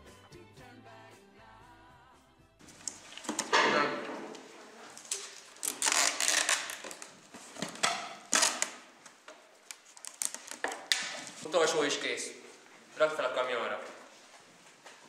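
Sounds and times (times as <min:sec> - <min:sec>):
packing tape ripping off roll: 0:02.6 - 0:11.5.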